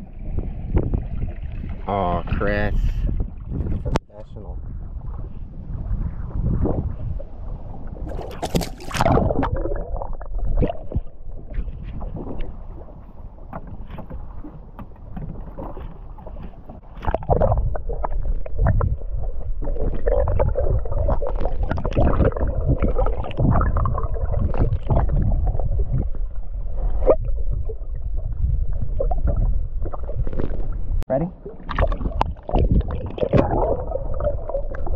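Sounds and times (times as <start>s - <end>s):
muffled underwater sounds: 0.0s - 34.9s
fish splashing into water: 8.0s - 11.1s
underwater knocks: 13.4s - 26.2s
steady low rumble: 16.8s - 34.9s.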